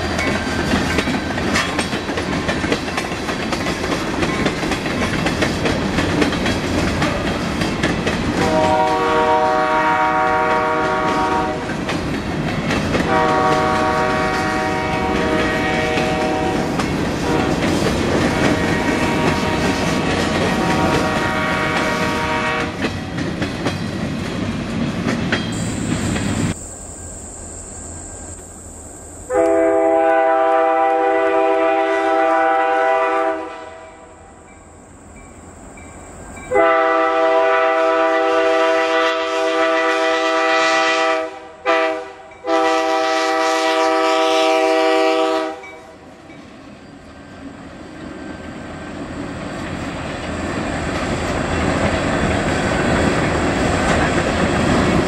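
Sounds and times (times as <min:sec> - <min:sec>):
freight cars rolling on track: 0:00.0 - 0:08.6, 0:46.3 - 0:55.0
locomotive air horn: 0:08.4 - 0:11.7, 0:13.0 - 0:22.8, 0:29.3 - 0:34.2, 0:36.5 - 0:45.9.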